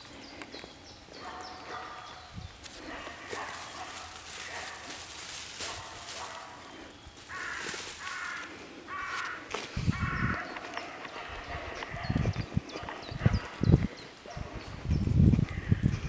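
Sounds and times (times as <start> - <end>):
fern leaves rustling: 2.2 - 10.4.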